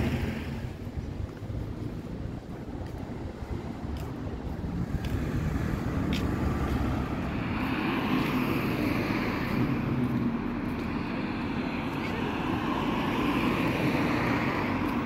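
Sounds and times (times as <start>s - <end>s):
wind on microphone: 0.0s - 10.4s
vehicle passing by: 4.5s - 15.0s.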